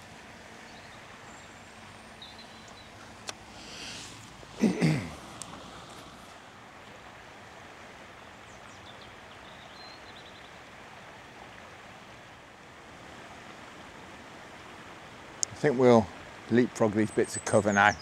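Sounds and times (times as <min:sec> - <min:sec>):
small birds chirping: 0:00.0 - 0:06.1, 0:08.2 - 0:10.6, 0:16.9 - 0:18.0
wind hiss: 0:00.0 - 0:17.2.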